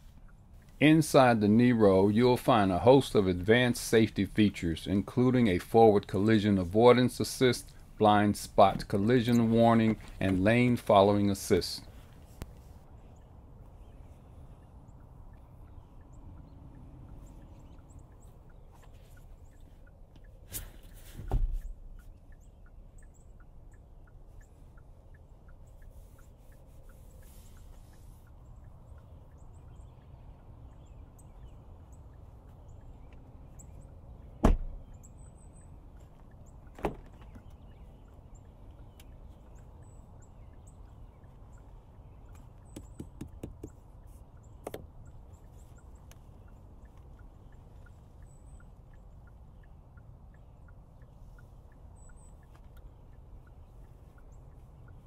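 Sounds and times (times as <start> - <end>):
low steady background: 0.0 - 55.0
knocks and thumps in car: 21.2 - 21.8, 34.4 - 34.8, 36.8 - 37.5.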